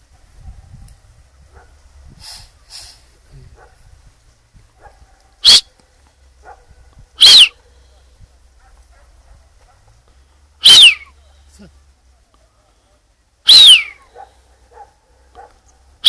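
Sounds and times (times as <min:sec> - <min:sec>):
sharp high animal calls: 0:05.4 - 0:05.8, 0:07.2 - 0:08.1, 0:10.6 - 0:11.8, 0:13.4 - 0:15.6.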